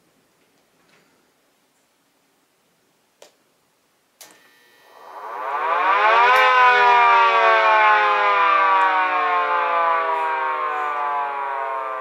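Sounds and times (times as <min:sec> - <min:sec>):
multi-tone warning siren winding down: 0:04.8 - 0:12.0.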